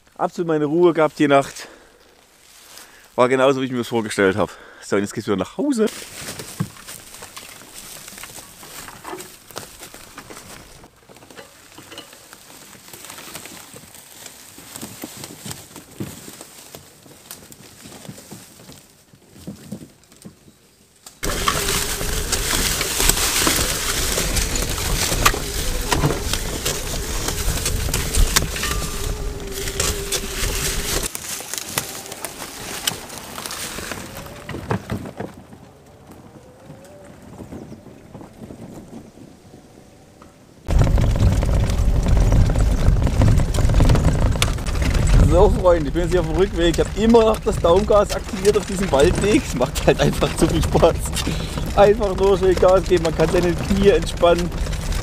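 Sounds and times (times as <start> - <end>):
tyres crackling through dry leaves: 0.0 - 4.4, 5.6 - 39.8, 40.7 - 55.0
electric motor whine: 21.2 - 32.9
rig rattling: 21.2 - 35.6, 40.7 - 55.0
rumble and wind: 21.2 - 55.0.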